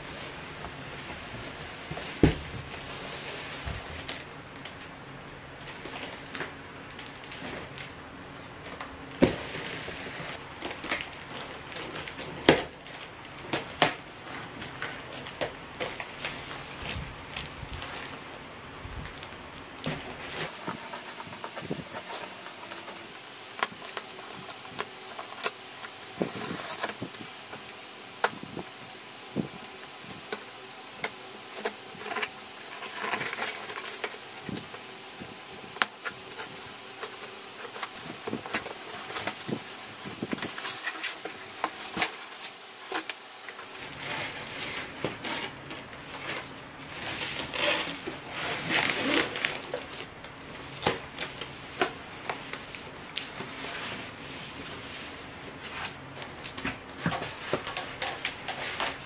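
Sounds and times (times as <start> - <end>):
plastic wrapping rustling: 0.0 - 5.0, 5.6 - 59.0
scissors cutting tape and cardboard: 20.4 - 45.6.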